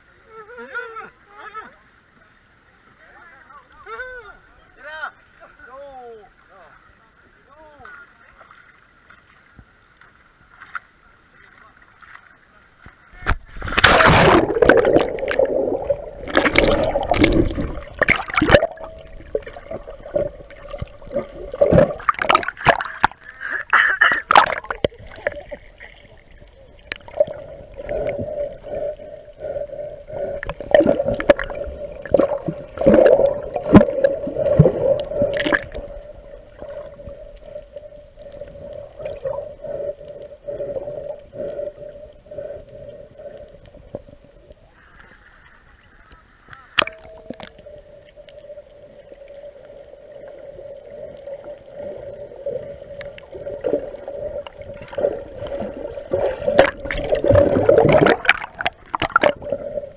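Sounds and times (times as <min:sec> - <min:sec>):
water sloshing and gurgling: 0:08.1 - 0:59.9
bubbling water rush: 0:13.2 - 0:44.9, 0:46.7 - 0:59.9
steady hum: 0:13.2 - 0:45.4, 0:46.2 - 0:59.9.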